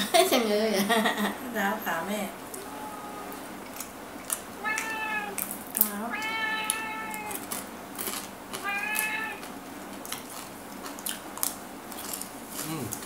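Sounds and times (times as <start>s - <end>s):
cat meowing: 2.5s - 3.4s, 4.6s - 7.6s, 8.6s - 9.5s
eating clicks: 3.3s - 13.0s.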